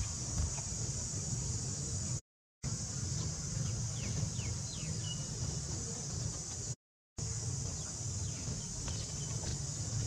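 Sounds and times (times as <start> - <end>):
insects buzzing: 0.0 - 10.0
bird chirps: 3.0 - 5.8, 7.7 - 10.0.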